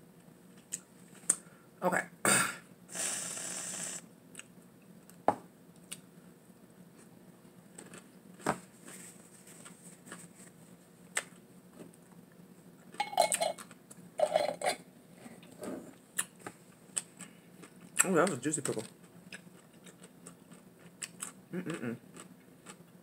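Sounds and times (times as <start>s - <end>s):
glass jar knocking: 13.0s - 13.6s
chewing crunchy pickle: 16.2s - 23.0s.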